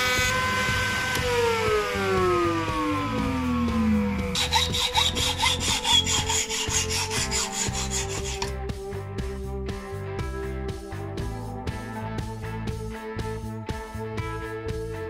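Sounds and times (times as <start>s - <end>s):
router whine spinning down: 0.0s - 8.5s
hacksaw cutting steel pin: 4.4s - 8.5s.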